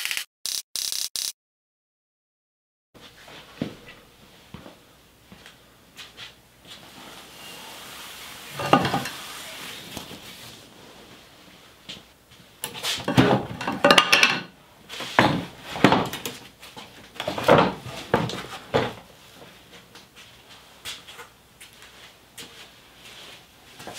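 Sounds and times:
wooden knocks and clatters: 17.2 - 19.0.

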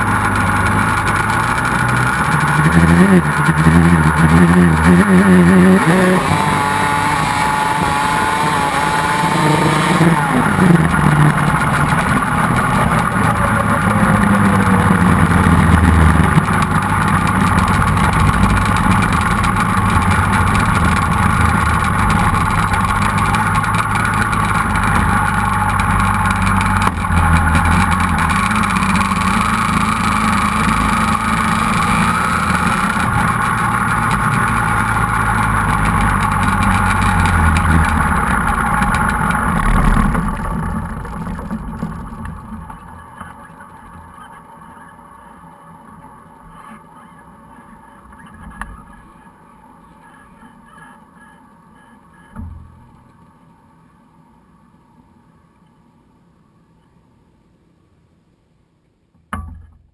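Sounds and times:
quad engine running: 0.0 - 44.4.

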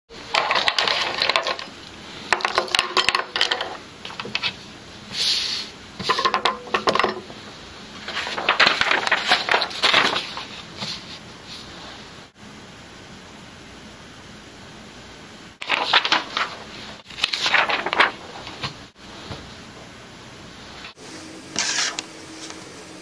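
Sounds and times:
objects clicking and knocking on wood: 0.3 - 1.7
paper rustling: 0.3 - 1.7, 8.0 - 11.8, 15.6 - 19.5.

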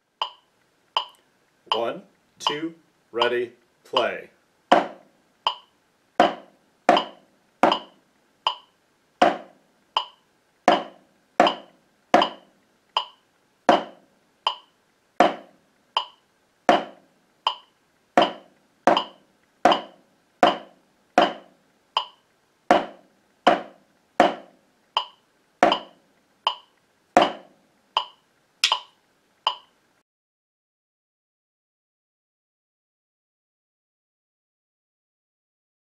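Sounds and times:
metronome clicking: 0.2 - 0.4, 1.0 - 2.6, 5.5 - 5.7, 6.9 - 8.7, 10.0 - 10.2, 13.0 - 13.2, 14.5 - 14.7, 16.0 - 16.2, 17.5 - 18.3, 18.9 - 19.9, 22.0 - 22.2, 25.0 - 26.7, 28.0 - 28.9, 29.5 - 29.7
drumsticks striking practice pad: 4.7 - 28.9.

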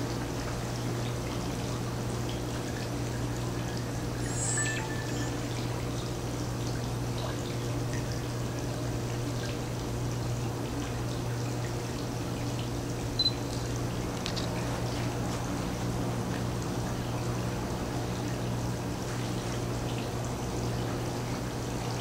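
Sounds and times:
short high chirp: 3.8 - 5.6.

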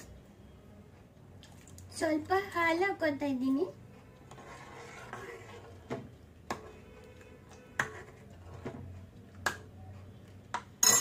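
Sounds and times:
ladle stirring soup: 4.2 - 9.6.

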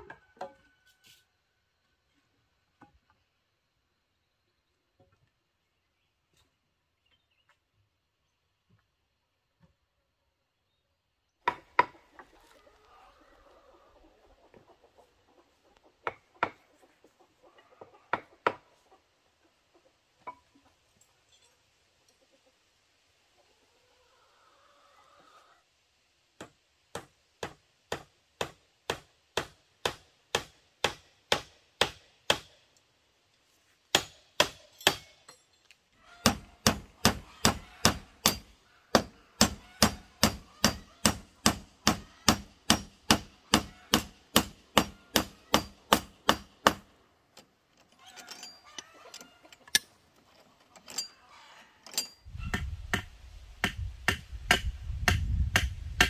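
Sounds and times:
hand tool striking bamboo: 33.9 - 35.1, 36.2 - 46.8, 51.9 - 55.8.

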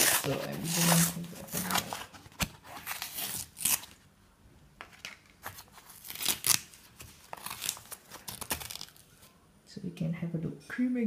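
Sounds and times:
foil seal tearing and crinkling: 0.0 - 4.0, 5.6 - 9.1.

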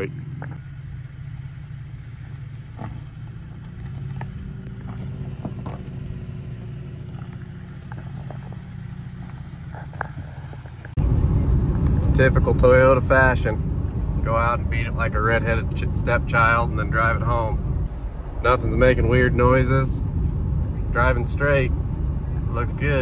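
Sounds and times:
truck engine running low: 0.0 - 23.0
truck road noise on highway: 0.0 - 23.0
stones clicking under tyres: 0.3 - 0.7, 2.2 - 11.0.

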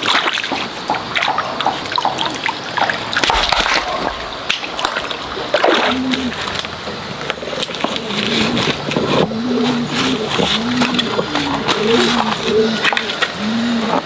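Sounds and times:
water splashing in stream: 0.0 - 9.2
person wading through water: 3.3 - 8.0.

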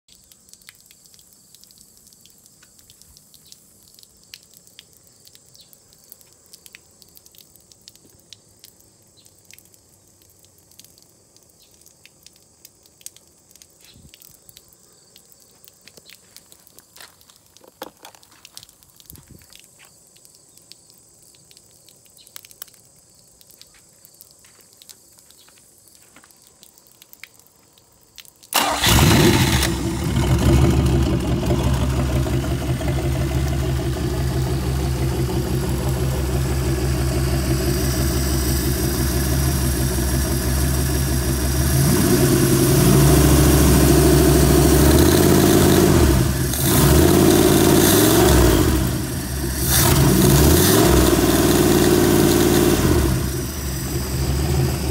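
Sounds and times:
car engine starting and running: 28.6 - 54.9.

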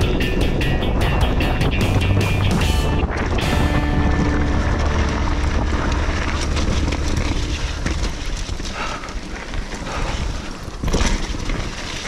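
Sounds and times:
bike rattling: 0.0 - 12.0
wind buffeting microphone: 0.0 - 12.0
tyres crunching on gravel: 2.5 - 12.0.

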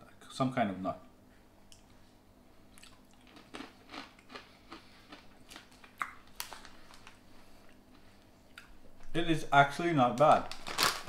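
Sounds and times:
person chewing crunchy snack: 2.7 - 7.0.

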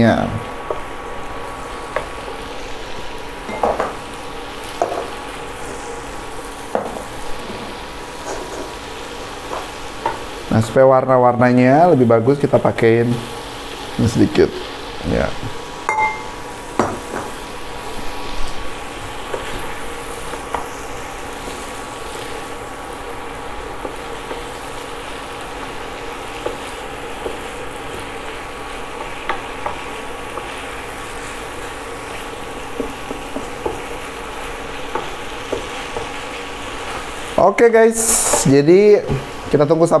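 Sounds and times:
food sizzling in frying pan: 0.0 - 40.0.

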